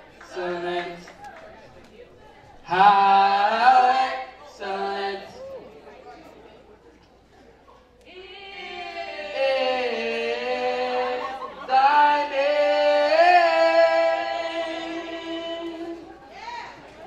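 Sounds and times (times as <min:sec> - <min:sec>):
group singing a cappella: 0:00.0 - 0:01.1, 0:02.6 - 0:05.4, 0:08.0 - 0:16.2.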